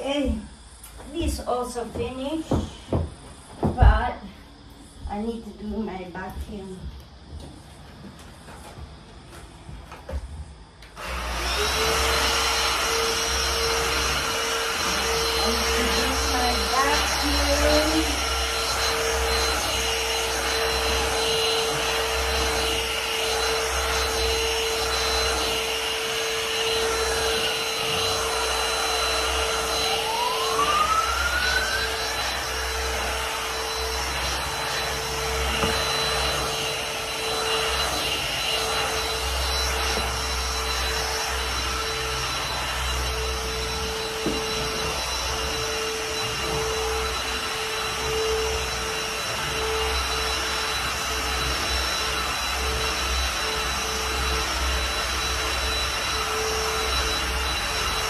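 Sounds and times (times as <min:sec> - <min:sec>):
vacuum cleaner running: 0:00.0 - 0:58.0
rising whistle: 0:26.6 - 0:58.0.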